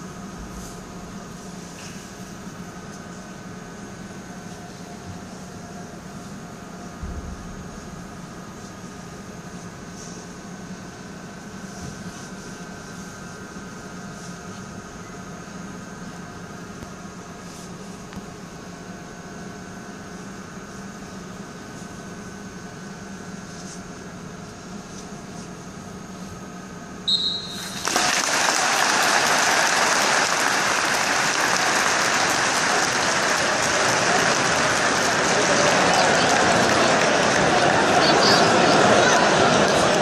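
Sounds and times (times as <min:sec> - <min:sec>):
faint steady hum: 0:00.0 - 0:40.0
referee's whistle: 0:27.0 - 0:27.9
crowd applauding: 0:27.6 - 0:40.0.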